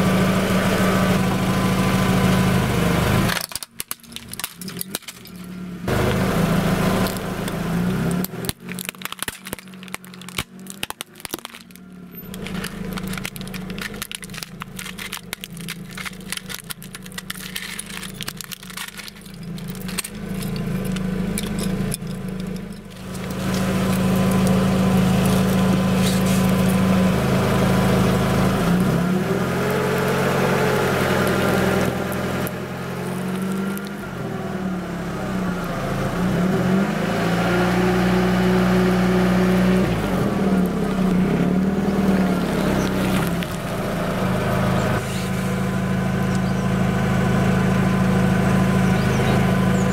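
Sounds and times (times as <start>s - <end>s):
car engine idling: 0.0s - 49.9s
plastic toy pieces cracking: 3.3s - 5.5s, 7.0s - 26.9s, 29.6s - 34.1s.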